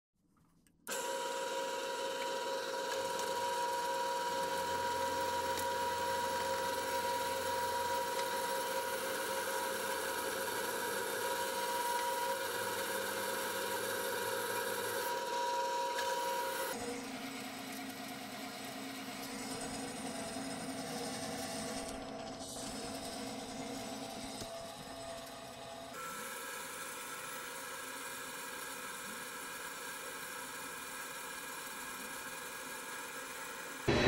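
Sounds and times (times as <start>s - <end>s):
drill press whining: 0.9s - 34.0s.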